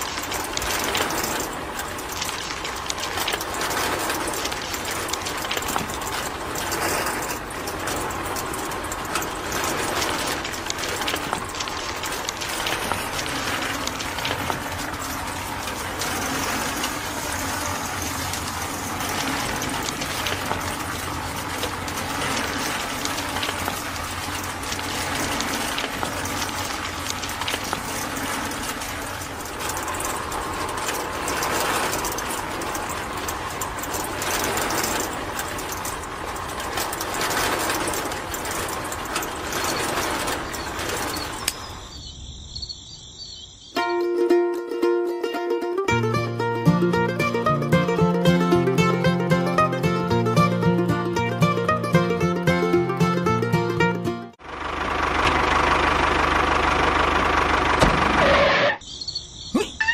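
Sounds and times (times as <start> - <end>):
sand and stones rattling on sieve: 0.0 - 42.0.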